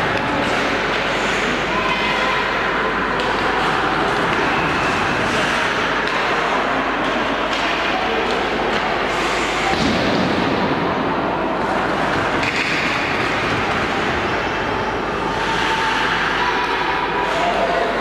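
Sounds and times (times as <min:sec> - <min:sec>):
faint knocks of sticks and pucks: 0:03.1 - 0:04.6, 0:05.4 - 0:10.6, 0:11.6 - 0:14.3.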